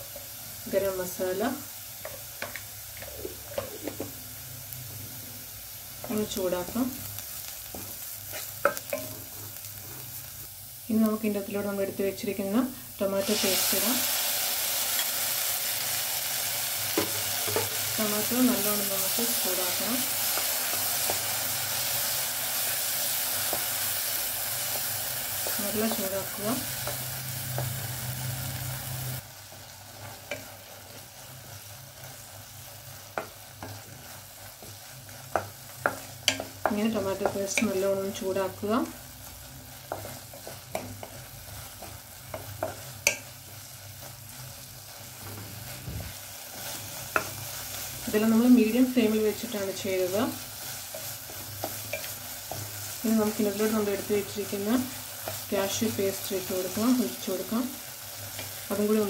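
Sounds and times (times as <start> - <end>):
food sizzling in oil: 0.0 - 59.0
spatula scraping and tapping pan: 2.0 - 4.2, 7.7 - 10.0, 16.9 - 17.9, 33.1 - 37.8, 39.8 - 43.3, 50.7 - 52.8.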